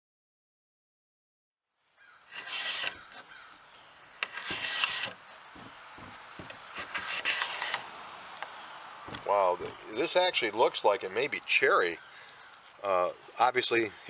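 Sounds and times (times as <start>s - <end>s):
plastic scraper scraping paint: 2.3s - 3.5s, 4.2s - 7.9s.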